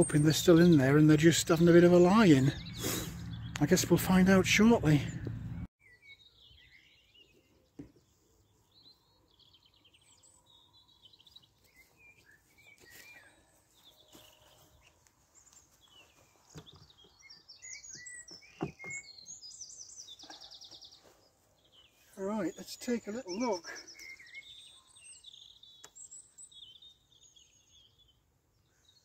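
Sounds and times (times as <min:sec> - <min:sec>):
birds chirping and trilling: 0:00.0 - 0:29.0
wooden hive frames knocking: 0:18.3 - 0:19.0.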